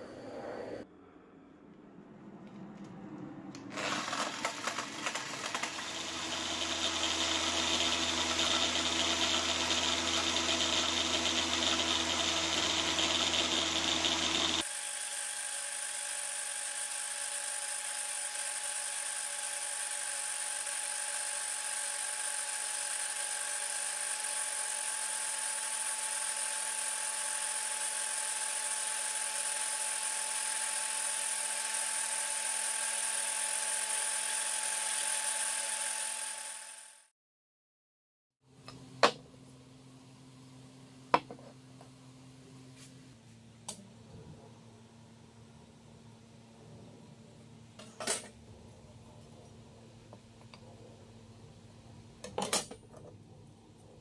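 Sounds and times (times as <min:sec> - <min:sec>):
angle grinder motor running: 0:03.7 - 0:37.1.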